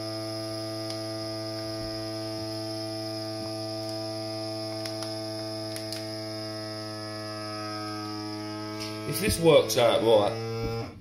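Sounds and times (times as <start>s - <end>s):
vacuum sealer pump humming: 0.0s - 11.0s.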